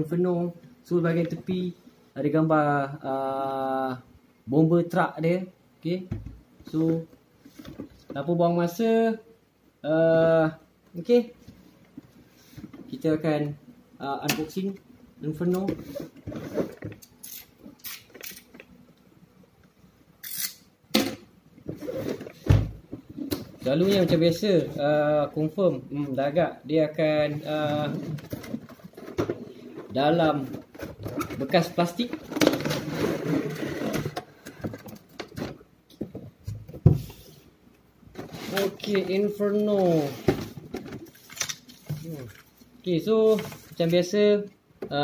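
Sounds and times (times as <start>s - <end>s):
cardboard rubbing and scraping: 15.8s - 16.8s, 21.7s - 22.5s, 27.4s - 34.2s, 38.2s - 39.0s, 39.8s - 40.6s
plastic tray sliding out of box: 21.7s - 22.7s, 27.8s - 34.7s, 38.2s - 38.9s, 39.9s - 40.6s.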